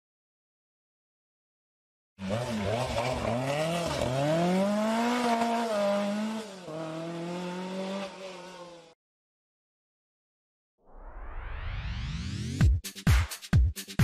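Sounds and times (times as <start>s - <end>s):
racing car engine revving: 2.2s - 9.0s.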